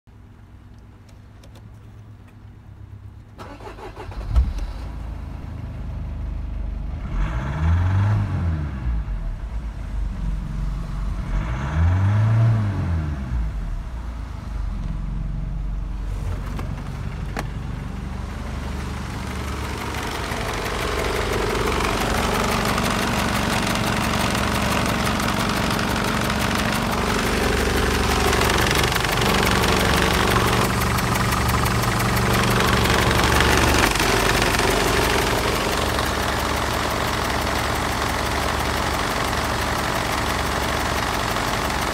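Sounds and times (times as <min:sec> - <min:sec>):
diesel engine idling and revving: 0:02.7 - 0:41.9
diesel engine starting: 0:03.4 - 0:41.9.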